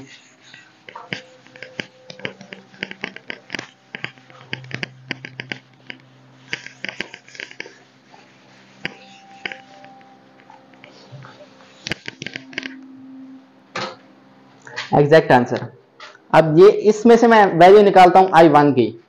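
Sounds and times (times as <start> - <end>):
eraser scraping whiteboard: 0.0 - 12.8.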